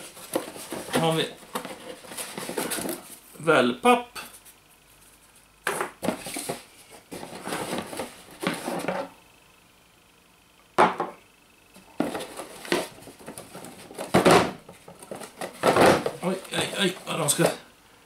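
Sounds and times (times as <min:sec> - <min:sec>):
cardboard rustling and scraping: 0:00.0 - 0:03.2, 0:04.4 - 0:09.2, 0:11.8 - 0:17.6.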